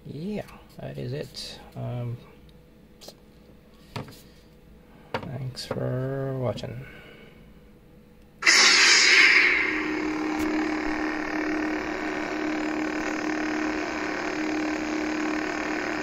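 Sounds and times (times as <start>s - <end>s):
lightsaber idle hum: 8.4s - 16.0s
lightsaber ignition: 8.4s - 16.0s.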